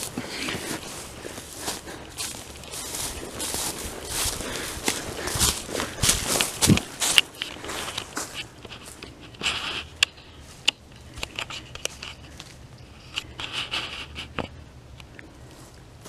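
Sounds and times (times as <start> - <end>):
twigs snapping: 0.0 - 12.6
footsteps through dry brush: 0.0 - 14.5, 15.4 - 16.0.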